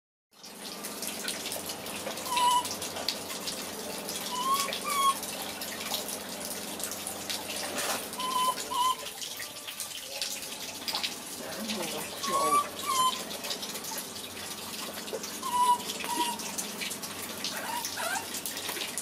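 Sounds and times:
running water hiss: 0.5s - 19.0s
baby monkeys coo calling: 2.3s - 2.7s, 4.3s - 5.2s, 8.2s - 9.0s, 12.2s - 13.2s, 15.4s - 16.4s, 17.6s - 18.3s.

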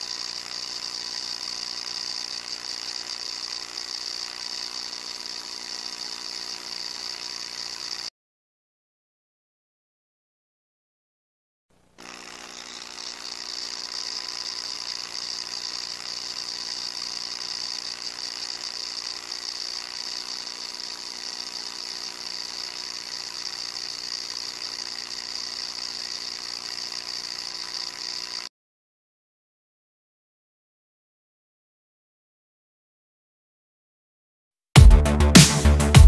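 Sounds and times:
small motor spinning propeller: 0.0s - 8.1s, 11.8s - 28.5s.

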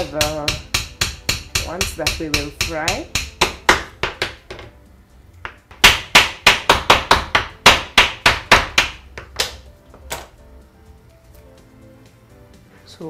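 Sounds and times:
knife chopping on wooden board: 0.0s - 4.7s, 5.4s - 9.6s.

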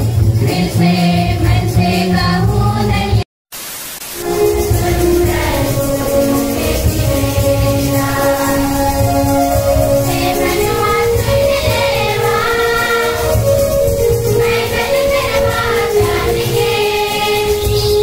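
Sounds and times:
group singing a hymn: 0.4s - 3.2s, 4.2s - 18.0s
musical accompaniment: 4.2s - 18.0s.

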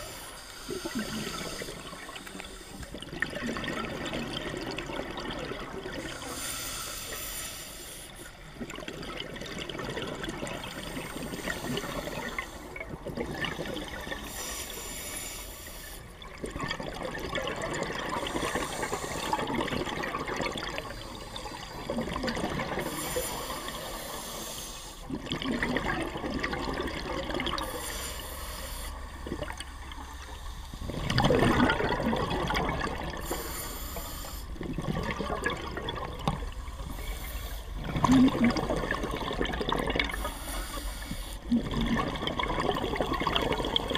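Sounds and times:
bubbling exhaled air: 0.0s - 7.1s, 16.2s - 43.9s
regulator hiss on inhalation: 6.2s - 8.3s, 14.3s - 16.0s, 22.8s - 25.0s, 27.6s - 29.0s, 33.2s - 34.5s, 40.1s - 41.4s.

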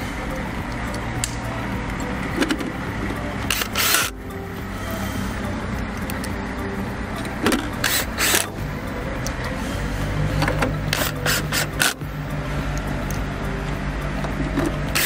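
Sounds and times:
sharp clicks and scrapes of metal: 3.4s - 4.2s, 7.2s - 8.6s, 10.4s - 12.1s, 14.2s - 15.0s.

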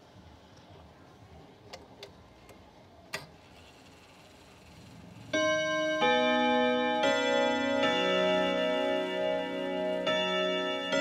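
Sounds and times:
clock chime on gong rods: 5.3s - 11.0s.

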